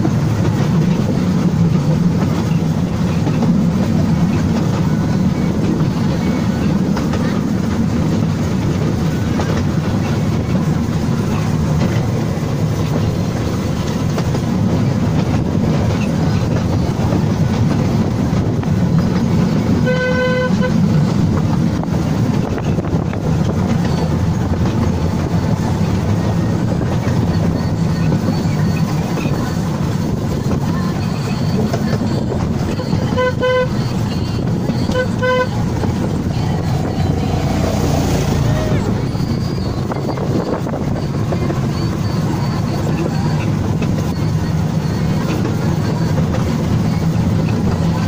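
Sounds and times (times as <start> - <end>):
train rumbling on rails: 0.0 - 48.0
train horn toot: 19.7 - 21.0, 32.6 - 39.1.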